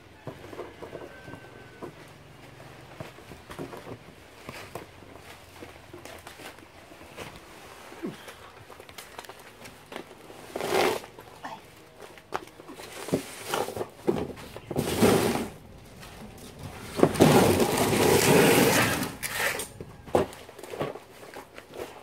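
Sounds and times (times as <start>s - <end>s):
cardboard rustling scrapes: 9.9s - 11.3s, 12.1s - 22.0s.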